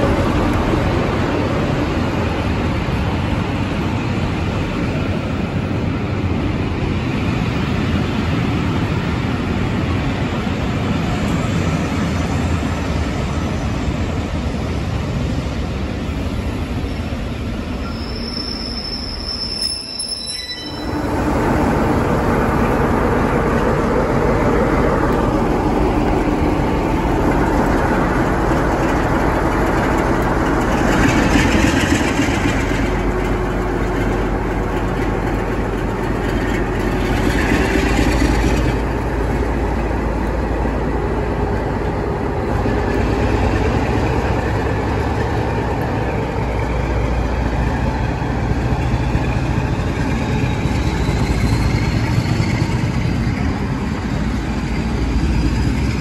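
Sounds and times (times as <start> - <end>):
diesel locomotive engine droning: 0.0 - 56.0
train coaches rumbling on track: 0.0 - 56.0
high wheel squeal: 17.8 - 21.2.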